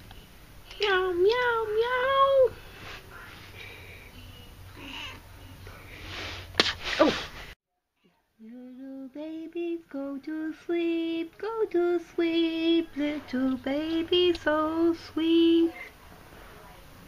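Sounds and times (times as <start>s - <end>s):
kitten hissing: 6.1s - 7.5s.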